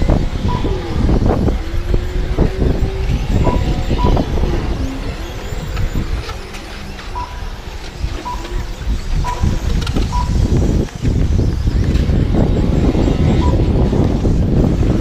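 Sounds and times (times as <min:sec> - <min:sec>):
heavy low rumble: 0:00.0 - 0:15.0
rc truck motors whining: 0:00.0 - 0:15.0
short high beeps: 0:07.0 - 0:07.5.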